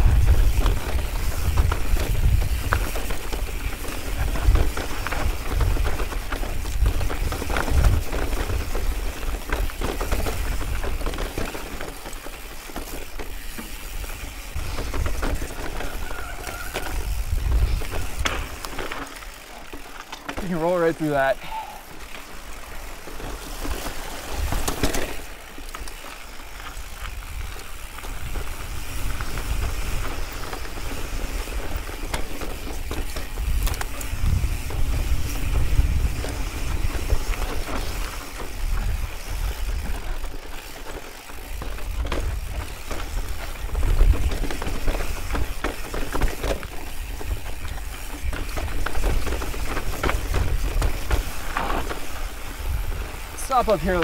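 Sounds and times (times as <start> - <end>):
wind buffeting microphone: 0.0 - 11.2, 14.1 - 18.6, 26.9 - 40.2, 41.8 - 54.0
bike rattling over rocks: 0.0 - 54.0.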